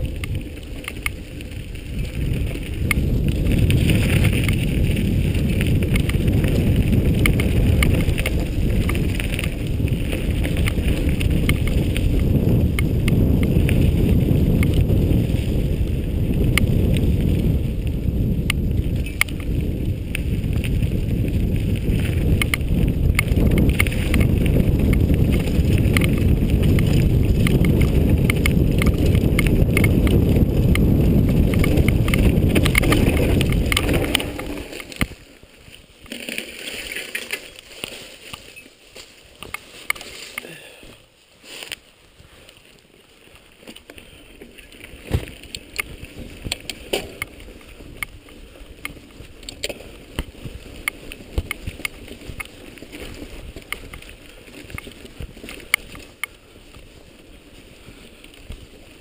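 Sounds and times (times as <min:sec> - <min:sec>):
wind rumble on microphone: 0:00.0 - 0:36.2, 0:43.3 - 0:59.0
bike clicks and rattles: 0:00.0 - 0:59.0
tyre crackles and knocks: 0:02.5 - 0:12.0, 0:21.8 - 0:35.3, 0:36.0 - 0:40.5, 0:44.8 - 0:47.4, 0:48.0 - 0:56.2.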